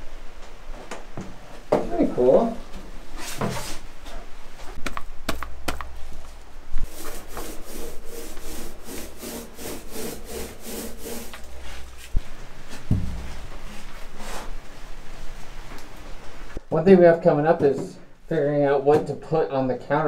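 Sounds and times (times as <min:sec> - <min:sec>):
paint roller rubbing strokes: 0:06.8 - 0:12.4
knocks: 0:12.8 - 0:13.6.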